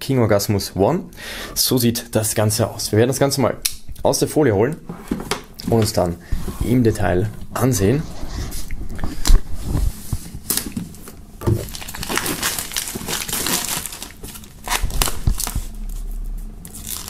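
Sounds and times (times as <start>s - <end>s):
plastic film crinkling and tearing: 11.6s - 16.0s, 16.6s - 17.0s.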